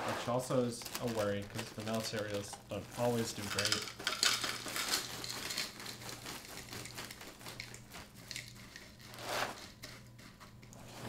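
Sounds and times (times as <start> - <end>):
cereal pouring into a bowl: 0.3 - 7.0
plastic bag crinkling: 0.5 - 9.8.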